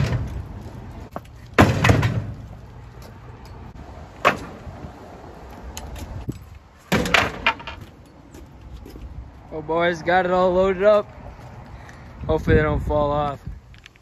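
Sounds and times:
wooden pallet landing on trailer: 1.6 - 2.5, 6.9 - 7.8.

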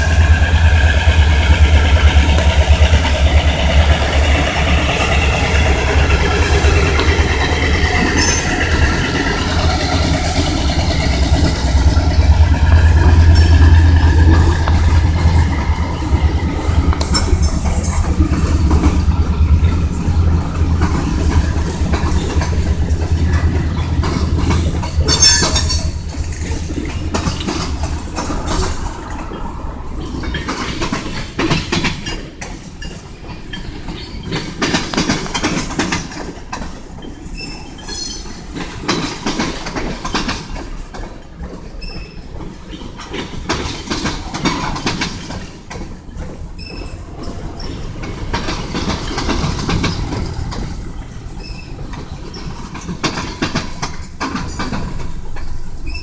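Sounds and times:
low rumble: 0.0 - 31.5
train wheels clacking over rail joints: 0.0 - 56.0.

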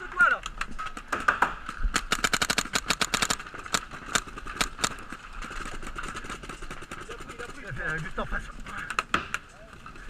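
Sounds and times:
paintball markers firing: 0.8 - 5.2.

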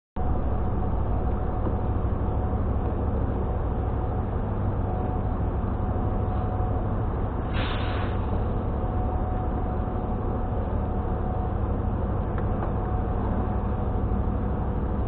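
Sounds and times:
faint steady whine: 0.2 - 15.0
low engine rumble: 0.2 - 15.0
brief hiss: 7.5 - 8.3.

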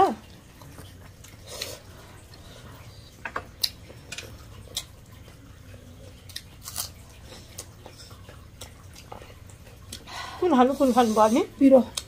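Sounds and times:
wet chewing and smacking: 0.3 - 10.1.

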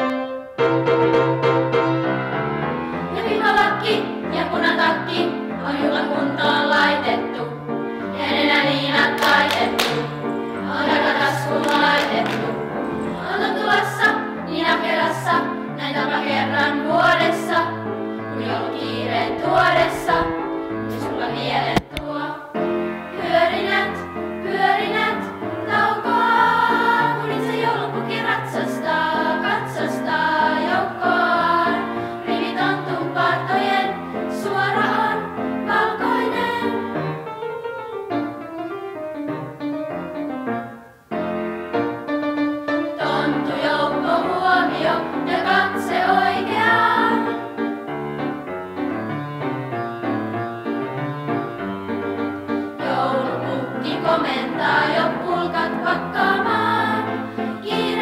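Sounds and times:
children's choir singing: 2.9 - 37.4, 42.7 - 48.0, 52.2 - 58.0.

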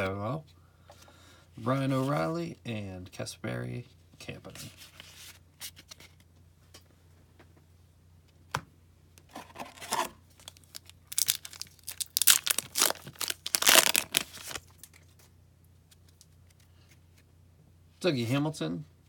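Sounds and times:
foil wrapper tearing and crinkling: 10.4 - 15.0.

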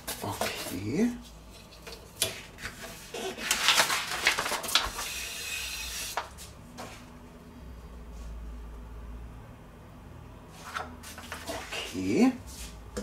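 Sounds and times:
handling of card: 2.4 - 5.2.

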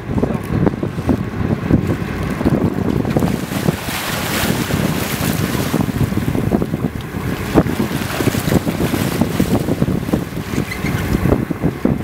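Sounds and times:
wind buffeting microphone: 0.0 - 12.0
fish thrashing and splashing water: 2.0 - 10.7.

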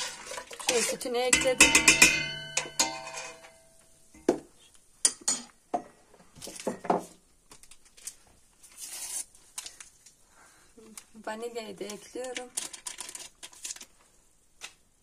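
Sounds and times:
kitchenware clatter: 0.0 - 4.4, 5.0 - 7.2
metal spoon clinking on pot: 0.6 - 3.8.

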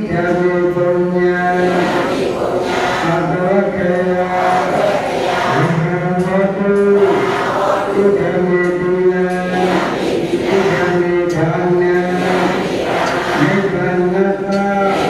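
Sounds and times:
men chanting in long notes: 0.0 - 15.0.

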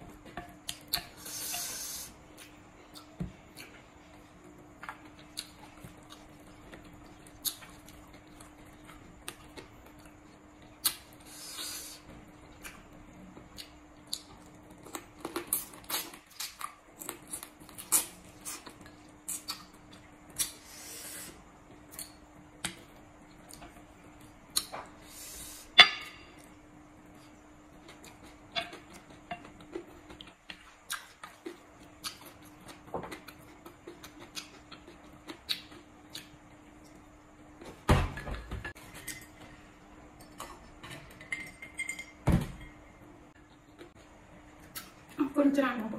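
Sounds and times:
faint steady hum: 0.0 - 45.9
chewing and smacking: 2.4 - 11.0, 27.8 - 37.0.

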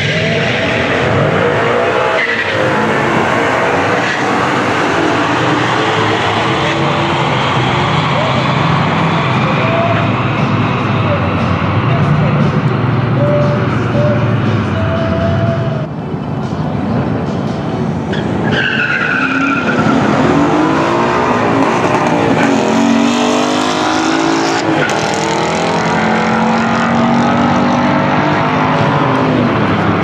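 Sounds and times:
tyres squealing: 0.0 - 11.3, 18.1 - 23.2
car engines revving hard: 0.0 - 30.0.

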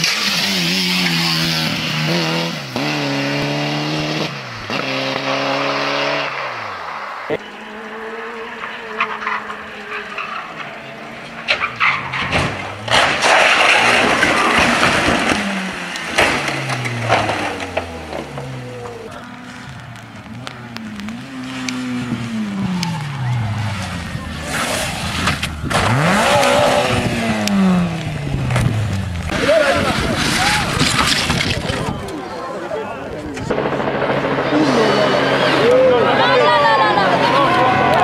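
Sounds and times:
rally car engine revving: 0.0 - 32.1, 33.4 - 38.0
car crashing and tumbling: 8.6 - 32.4.

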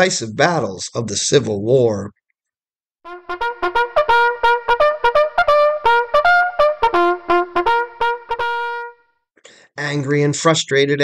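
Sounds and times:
solo brass tune: 3.0 - 9.1.

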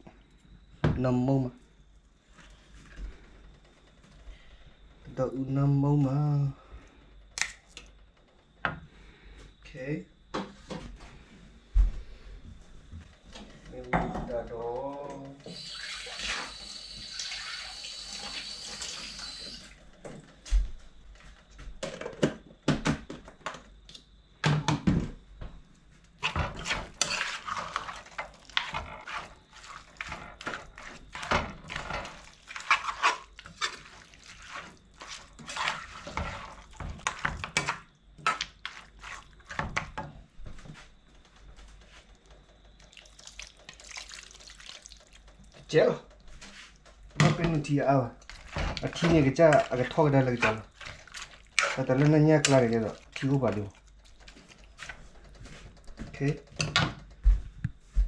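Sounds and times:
water running from tap: 15.5 - 19.8, 42.8 - 45.3.

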